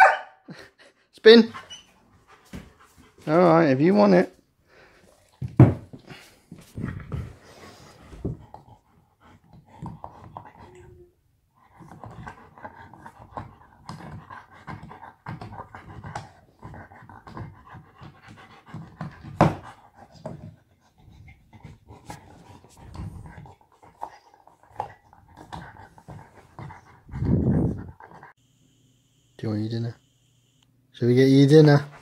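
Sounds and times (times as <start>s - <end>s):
dog panting: 0.5s - 3.6s, 6.0s - 28.4s.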